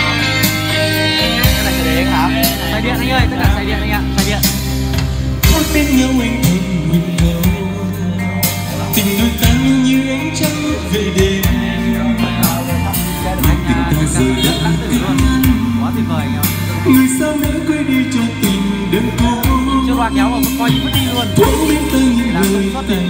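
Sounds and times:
karaoke backing music: 0.0 - 23.0
man singing into microphone: 5.4 - 23.0.

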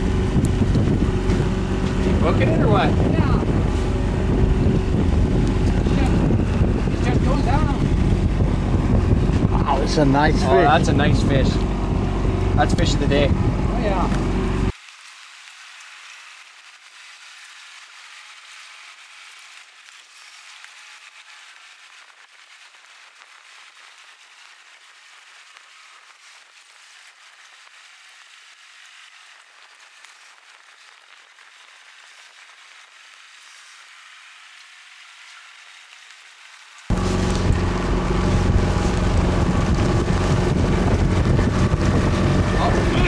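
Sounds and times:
boat and wind noise: 0.0 - 14.7, 36.9 - 43.0
rain hissing: 0.0 - 43.0.

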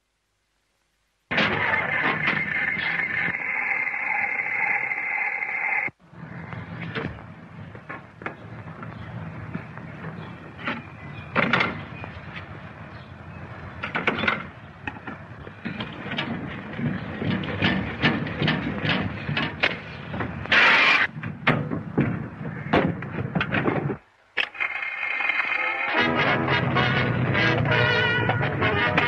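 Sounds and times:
film soundtrack crackle: 0.0 - 11.0, 23.0 - 29.0
hammering knocks and clattering: 13.8 - 20.5, 21.1 - 24.0.

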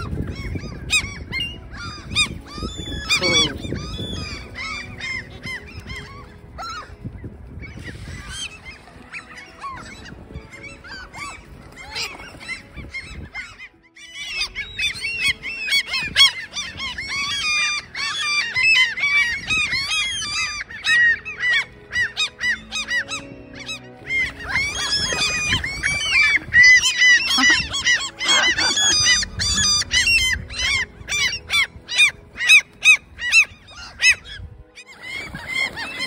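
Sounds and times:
gulls calling: 0.0 - 36.0.

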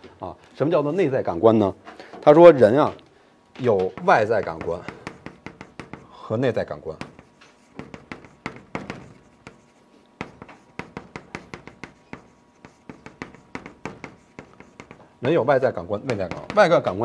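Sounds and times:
chalk writing on chalkboard: 3.9 - 17.0.

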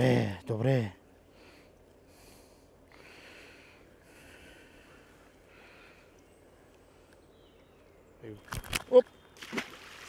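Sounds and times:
person breathing softly: 1.2 - 7.3.

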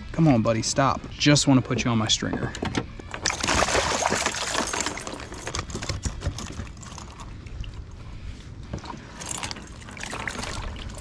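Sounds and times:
water dripping and sloshing: 3.1 - 11.0.

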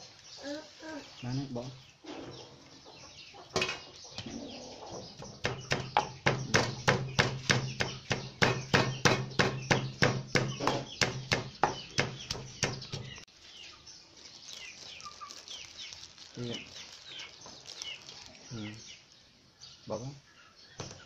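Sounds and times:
wooden pestle pounding in mortar: 5.4 - 13.1.

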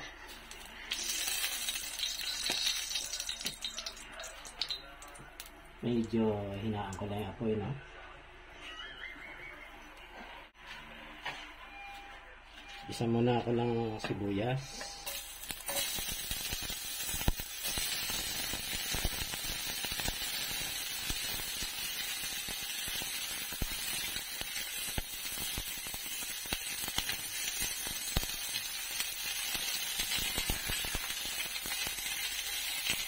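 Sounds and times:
onions sizzling in oil: 0.4 - 4.8, 15.0 - 33.0.

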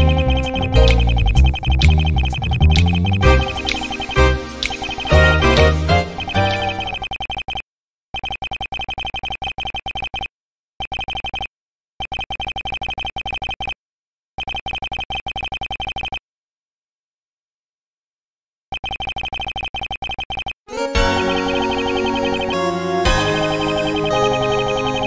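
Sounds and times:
rapid short text beeps: 0.0 - 7.6, 18.7 - 20.6.

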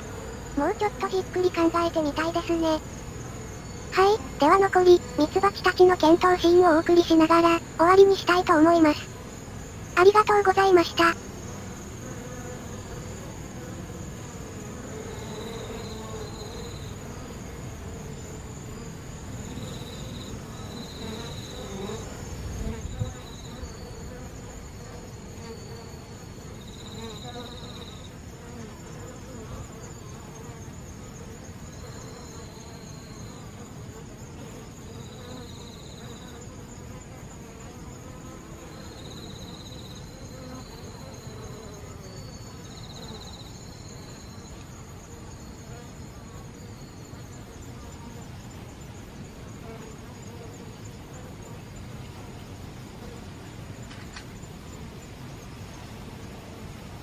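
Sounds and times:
bees buzzing: 0.0 - 39.2.

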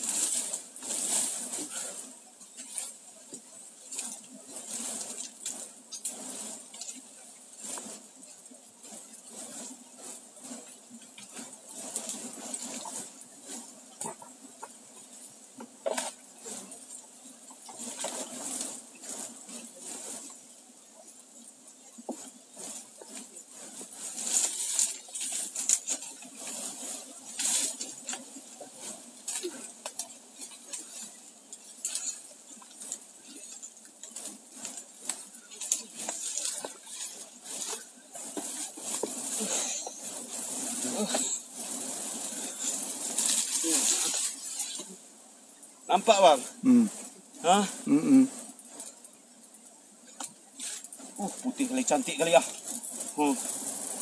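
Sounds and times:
smoke torch crackling: 0.0 - 54.0.

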